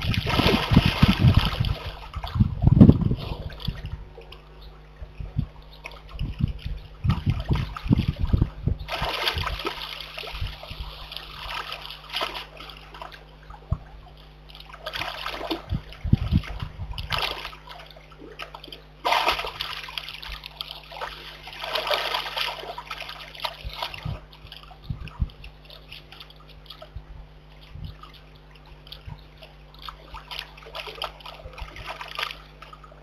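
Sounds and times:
bear cub splashing in water: 0.0 - 2.4, 8.9 - 13.2.

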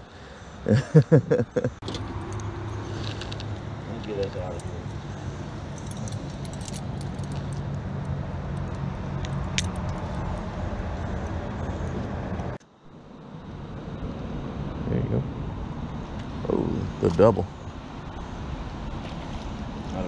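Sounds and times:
low hum: 0.0 - 20.0
metal chain clinking: 1.8 - 10.4.

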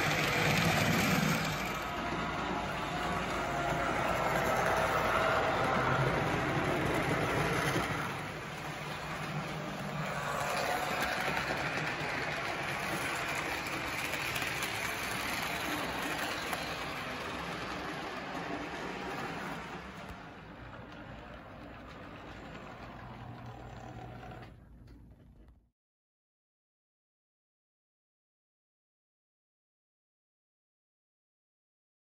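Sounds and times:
model locomotive motor running: 0.0 - 25.1
model train rolling on rails: 0.0 - 25.5.

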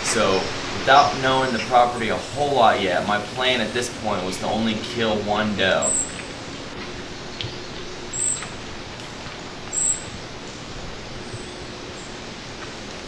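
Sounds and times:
steady outdoor hiss: 0.0 - 13.0
high bird chirps: 5.8 - 6.3, 7.1 - 8.6, 9.7 - 10.2.

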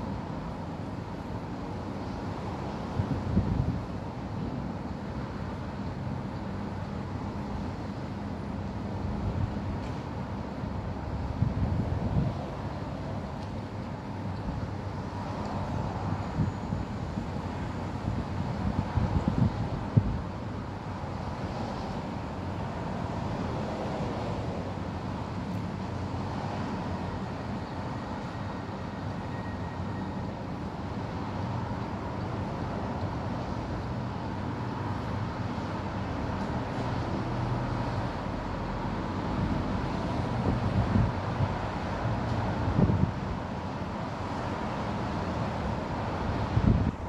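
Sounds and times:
road traffic hum: 0.0 - 47.0
wind buffeting microphone: 2.9 - 3.9, 17.9 - 20.3, 40.3 - 41.6, 42.6 - 43.3, 46.3 - 47.0.

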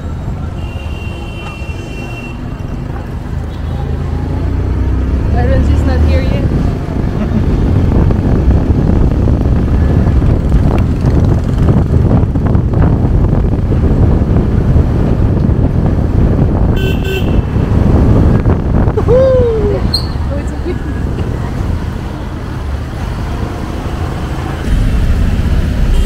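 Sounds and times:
traffic noise: 0.0 - 26.0
wind noise: 4.3 - 26.0
vehicle horn honking: 16.8 - 17.5.

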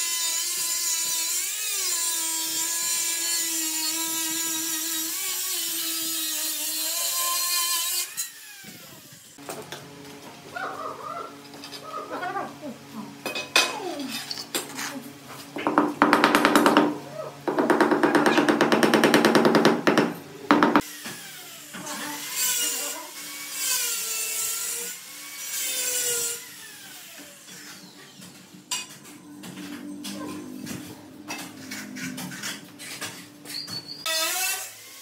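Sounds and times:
small power tool buzzing: 0.0 - 9.5, 17.5 - 28.4, 34.0 - 35.0
wavering squeaks: 27.5 - 34.4.

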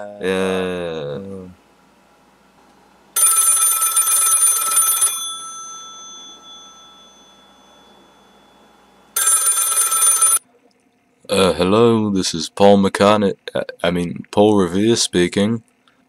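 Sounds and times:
telephone bell ringing: 3.2 - 10.4.

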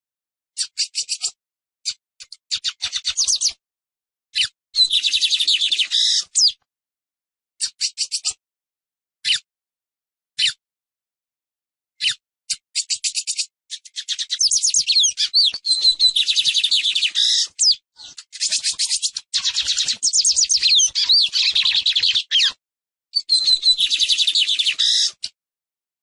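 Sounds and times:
bird singing rapid chattering notes: 0.6 - 3.6, 4.4 - 6.6, 7.6 - 8.4, 12.0 - 22.6, 23.2 - 25.4.

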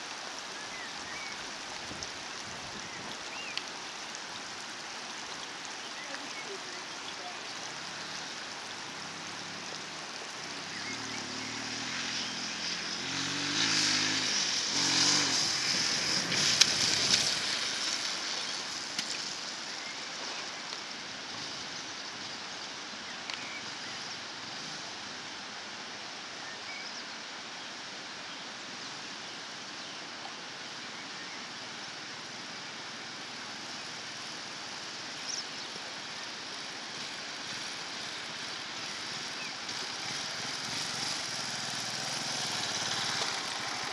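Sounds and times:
steady background hiss: 0.0 - 43.9
off-road vehicle engine passing: 7.6 - 19.5, 36.4 - 43.9.

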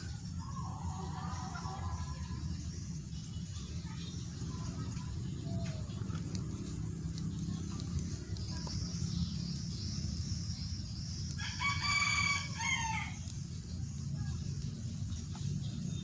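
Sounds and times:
steady low hum: 0.0 - 16.0
rooster crowing: 11.4 - 13.2.

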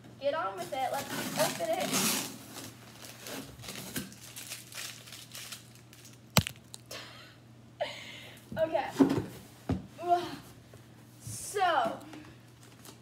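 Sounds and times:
packaging crinkling and tearing: 2.9 - 6.9.

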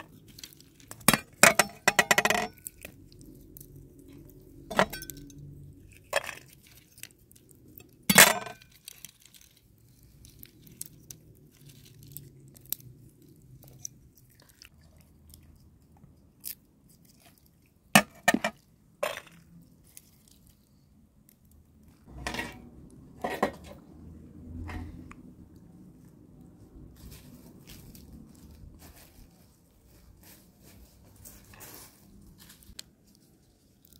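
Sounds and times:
rustling scrape: 26.0 - 33.9.

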